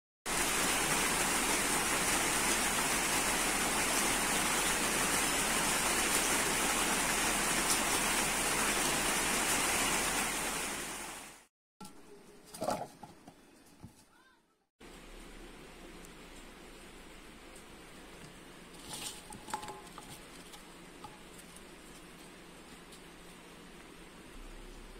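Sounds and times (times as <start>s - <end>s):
rush of falling water: 0.3s - 11.5s.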